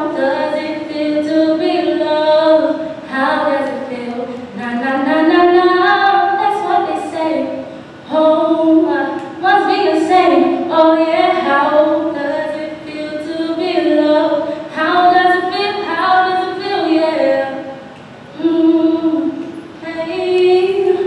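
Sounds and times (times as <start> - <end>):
woman singing unaccompanied: 0.0 - 21.0.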